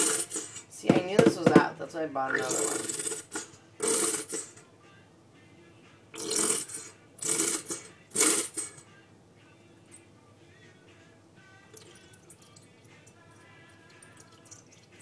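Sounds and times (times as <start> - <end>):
squeeze bottle sputtering: 0.0 - 0.6, 2.3 - 4.6, 6.2 - 8.8.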